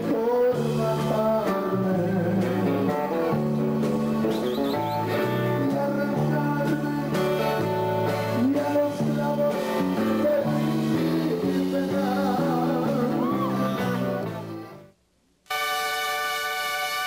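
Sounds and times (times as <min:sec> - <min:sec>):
instrumental band music: 0:00.0 - 0:14.9, 0:15.5 - 0:17.0.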